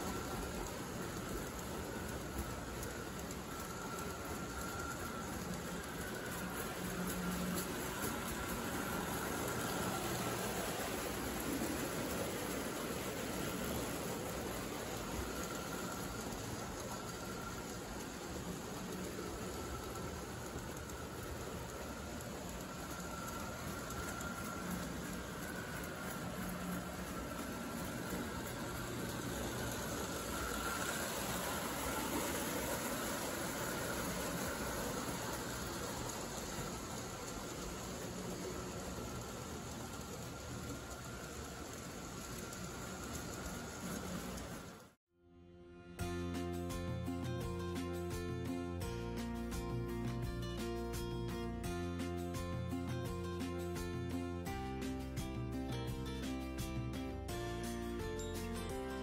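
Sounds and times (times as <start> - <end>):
metal wheels rolling on rails: 0.0 - 45.0, 46.0 - 59.0
small electric motors running: 0.0 - 45.0
toy trains rumbling on track: 0.0 - 45.0, 46.0 - 59.0.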